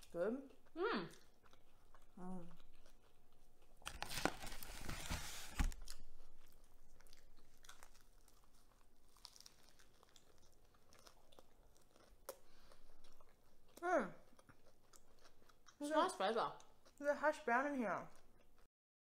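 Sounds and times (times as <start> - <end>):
person chewing: 0.0 - 4.8, 5.8 - 17.0, 18.1 - 18.7
cardboard boxes rustling: 4.0 - 5.8.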